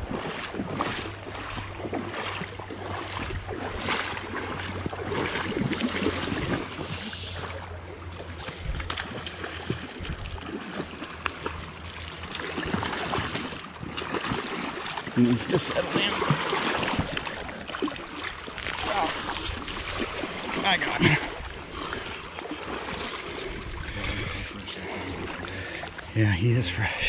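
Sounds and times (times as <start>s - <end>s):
wind rumble on microphone: 0.0s - 7.2s, 8.4s - 10.6s
creek water rushing: 9.1s - 27.0s.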